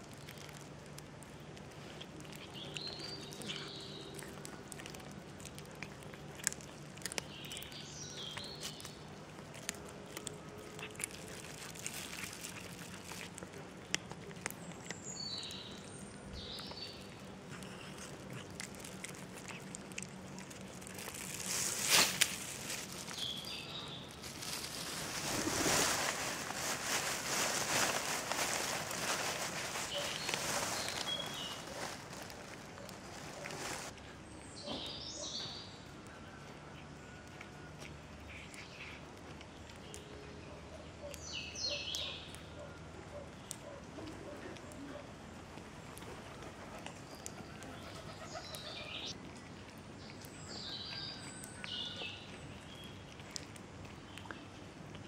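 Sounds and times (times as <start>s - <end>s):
cats chewing raw fish: 0.0s - 55.0s
small birds chirping: 0.1s - 54.6s
loud rustling: 24.1s - 33.9s.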